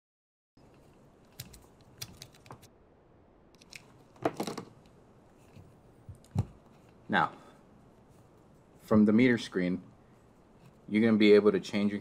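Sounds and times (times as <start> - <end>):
device clattering: 3.6 - 4.9.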